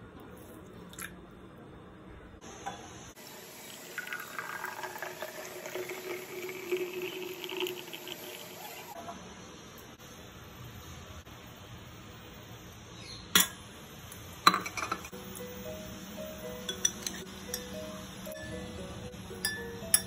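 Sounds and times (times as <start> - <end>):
milkshake pouring into a glass: 3.6 - 9.0.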